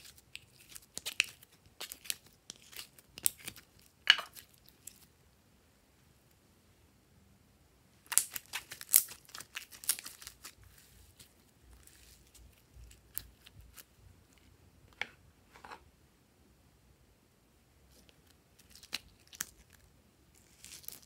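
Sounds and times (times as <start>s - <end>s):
slime clicking and popping: 8.1s - 10.4s.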